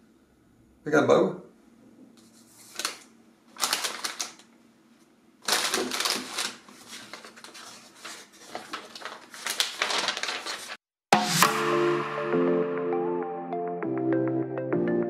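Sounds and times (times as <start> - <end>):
booklet pages rustling: 2.2 - 4.5, 5.4 - 10.8
plastic bags crinkling: 2.6 - 4.5, 5.4 - 10.8.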